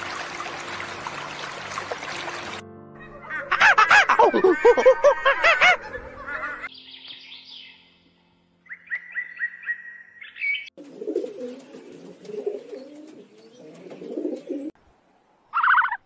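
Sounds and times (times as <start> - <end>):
bird chirping high notes: 5.6 - 12.9
pigeons cooing: 10.8 - 14.8.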